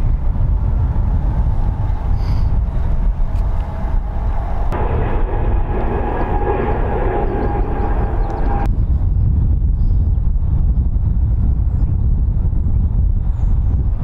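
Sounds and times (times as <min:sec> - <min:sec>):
aircraft low rumble: 0:00.0 - 0:14.0
high-pitched aircraft whine: 0:01.0 - 0:08.8.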